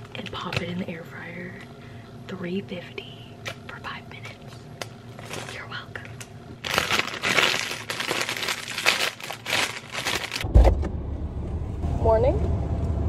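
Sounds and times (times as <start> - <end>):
plastic packaging crinkling: 4.8 - 10.5.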